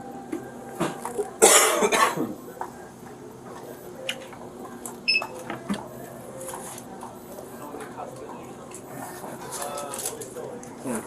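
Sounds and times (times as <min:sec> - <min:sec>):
short electronic register beep: 0:05.1 - 0:05.4.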